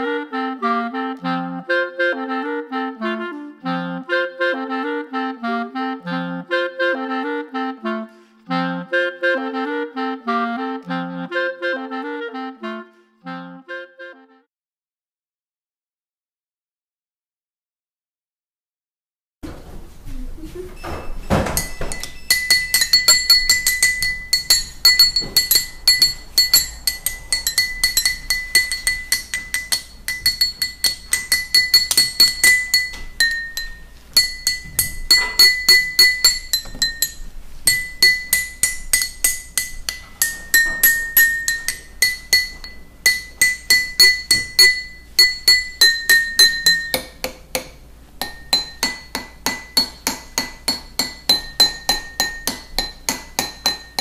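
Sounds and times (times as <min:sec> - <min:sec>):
drinking glasses ringing tune: 0:21.4 - 0:47.2.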